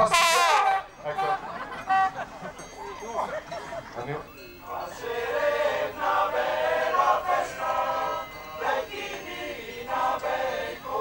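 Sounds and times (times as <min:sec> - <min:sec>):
voices singing together: 0:03.6 - 0:11.0.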